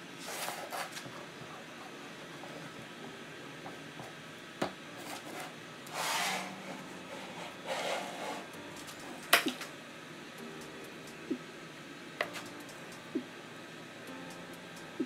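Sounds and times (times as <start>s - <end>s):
wooden board rubbing on wood: 6.0s - 6.5s, 7.1s - 8.5s.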